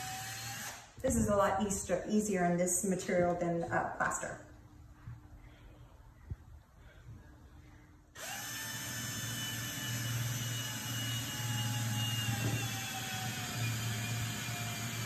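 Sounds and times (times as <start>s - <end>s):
cordless drill whining: 0.0s - 1.0s, 8.2s - 15.0s.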